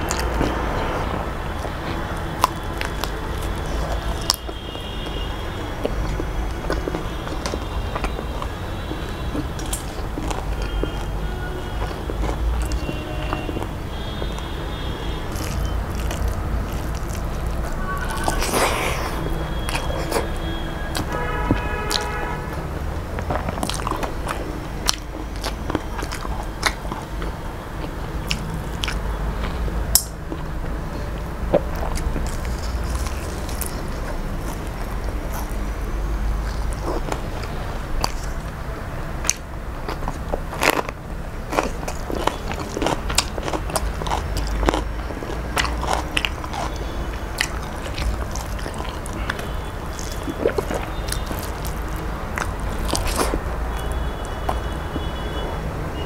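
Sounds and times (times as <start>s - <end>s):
sharp food crunches: 0.0s - 11.2s, 11.8s - 30.8s, 31.4s - 38.6s, 39.2s - 55.2s
close-up chewing: 0.0s - 55.5s
wet mouth clicks: 9.3s - 11.1s, 15.2s - 35.7s, 36.3s - 55.2s.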